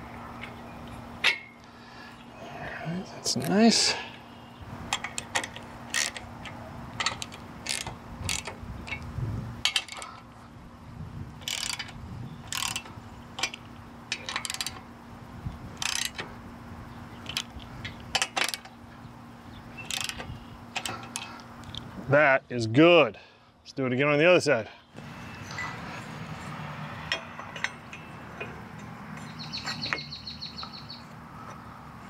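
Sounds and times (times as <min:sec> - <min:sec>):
ratchet wrench clicking: 0:04.9 - 0:10.2, 0:11.4 - 0:14.9, 0:15.8 - 0:16.3, 0:17.2 - 0:18.7, 0:19.8 - 0:21.8.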